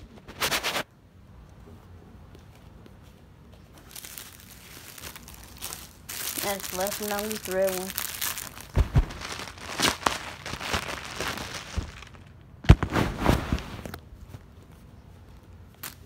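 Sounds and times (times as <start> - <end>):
plastic bags crinkling: 3.8 - 12.4.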